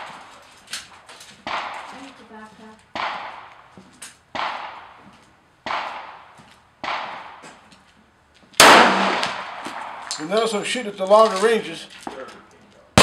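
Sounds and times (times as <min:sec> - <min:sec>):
pistol shots ringing out: 0:01.4 - 0:01.9, 0:02.9 - 0:03.7, 0:04.3 - 0:05.0, 0:05.6 - 0:07.4, 0:08.6 - 0:10.3.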